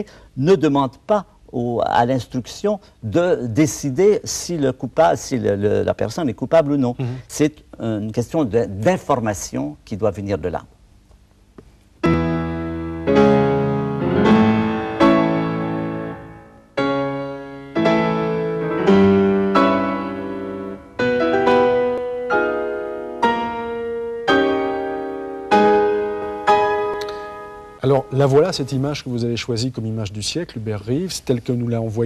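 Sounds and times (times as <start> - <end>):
slow solo piano music: 12.0 - 28.2.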